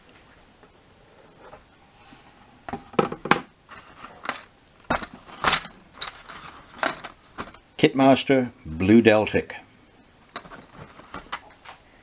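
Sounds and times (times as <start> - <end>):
cardboard rustling: 10.4 - 11.8.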